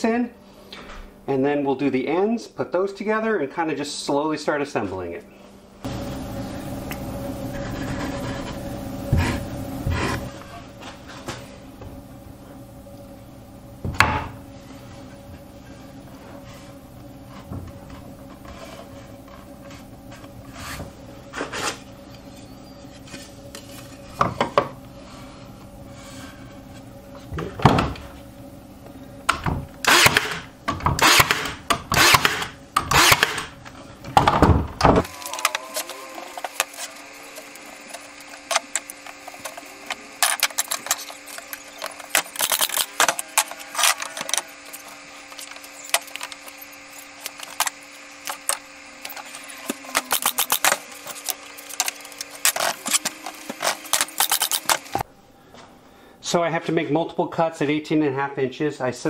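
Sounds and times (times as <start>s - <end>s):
faint steady hum: 0.0s - 59.0s
nail gun shots: 29.9s - 30.4s, 31.0s - 33.5s.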